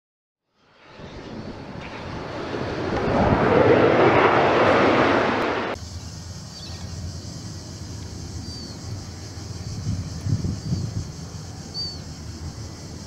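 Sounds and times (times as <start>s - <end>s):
jet aircraft roar: 0.5s - 13.0s
wind noise: 0.6s - 7.5s, 8.2s - 13.0s.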